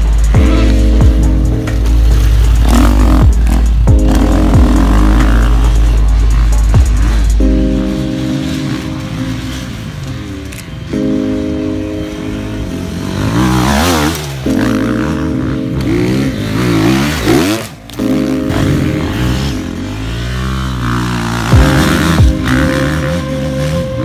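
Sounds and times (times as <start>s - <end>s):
dirt bike engine revving: 0.0s - 24.0s.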